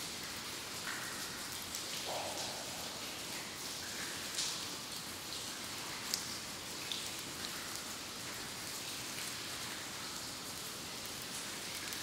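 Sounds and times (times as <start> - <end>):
water drops dripping: 0.8 - 4.7.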